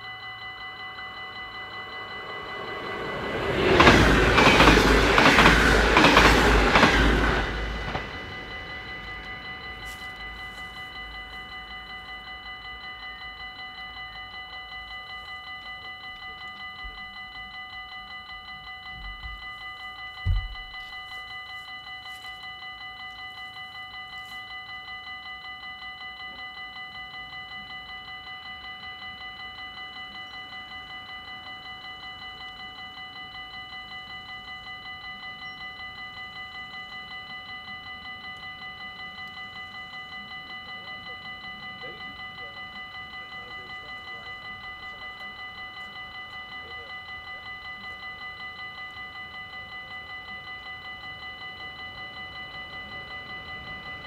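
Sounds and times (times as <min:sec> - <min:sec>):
level crossing warning bell: 0:00.0 - 0:54.0
low thump: 0:20.3 - 0:20.7.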